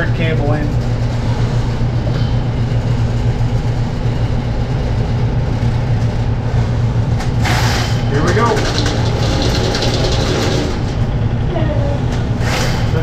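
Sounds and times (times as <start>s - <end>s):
low machine hum: 0.0s - 13.0s
short rattle: 7.4s - 11.2s.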